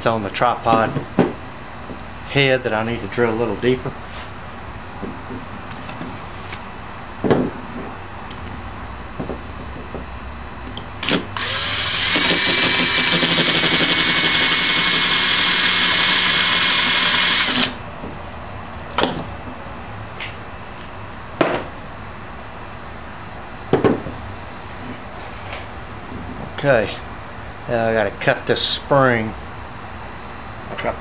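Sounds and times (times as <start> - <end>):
power drill whining: 11.0 - 17.8.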